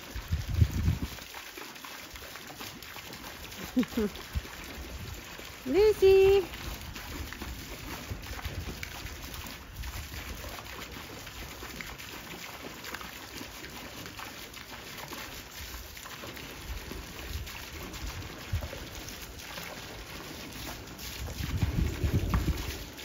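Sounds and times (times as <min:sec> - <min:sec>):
hose jet splashing into pool: 0:00.0 - 0:23.0
wind rumbling on microphone: 0:00.1 - 0:01.3, 0:04.2 - 0:10.4, 0:16.6 - 0:19.4, 0:20.7 - 0:23.0.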